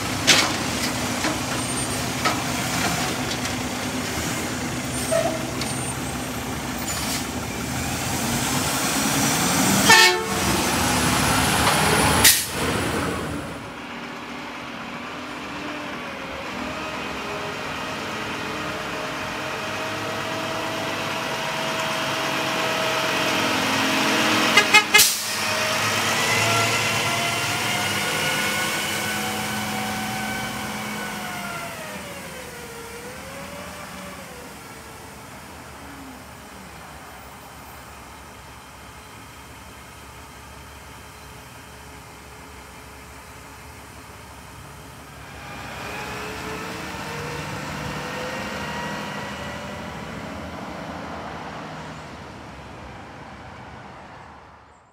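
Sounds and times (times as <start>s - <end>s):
garbage truck diesel engine: 0.0s - 54.6s
truck horn toots: 9.8s - 10.8s, 24.4s - 25.6s.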